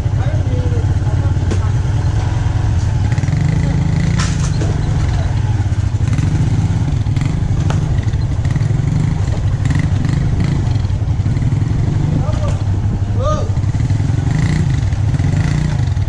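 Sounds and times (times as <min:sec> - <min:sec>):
motorcycle engine running: 0:00.0 - 0:16.0
bike knocks and rattles: 0:01.3 - 0:01.9, 0:02.7 - 0:11.0.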